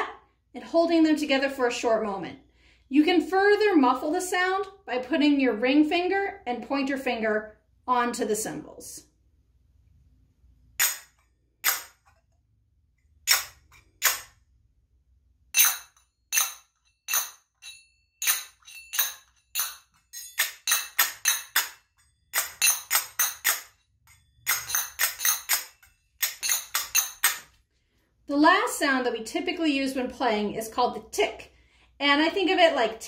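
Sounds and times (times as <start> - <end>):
finger cymbals clinking: 15.6 - 27.5.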